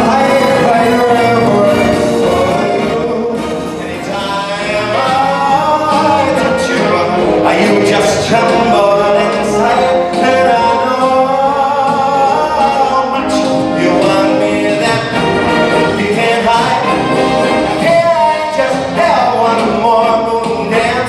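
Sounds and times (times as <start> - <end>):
instrumental backing music: 0.0 - 21.0
man singing into microphone: 0.0 - 21.0.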